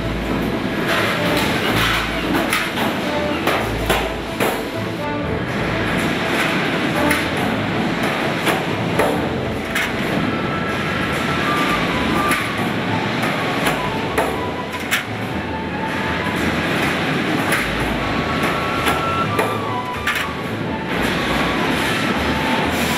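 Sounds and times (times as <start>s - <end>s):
loud machine din: 0.0s - 22.9s.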